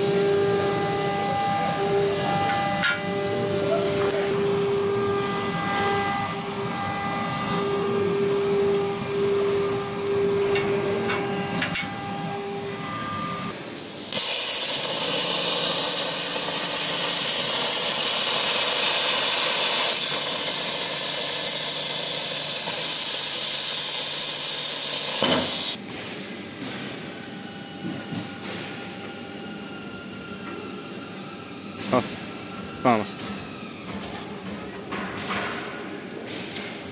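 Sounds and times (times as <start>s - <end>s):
plasma cutter hissing: 12.4s - 25.8s.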